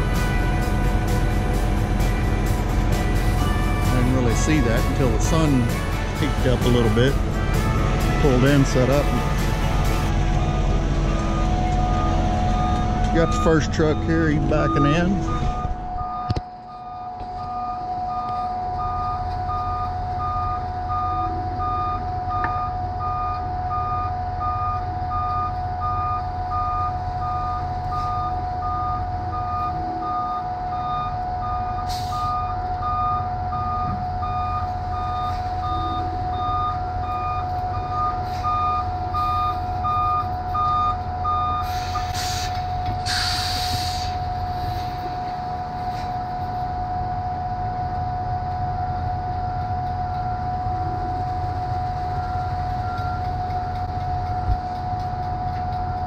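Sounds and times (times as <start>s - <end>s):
diesel engine running: 0.0s - 56.0s
steady whine: 0.0s - 56.0s
truck backup alarm beeping: 0.0s - 56.0s
air brakes hissing: 31.8s - 32.4s, 38.2s - 38.6s, 41.6s - 45.2s.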